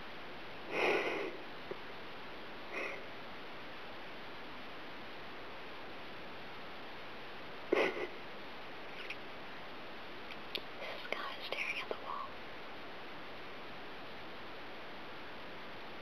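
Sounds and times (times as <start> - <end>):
steady low hiss: 0.0 - 16.0
faint clicks: 10.3 - 11.2.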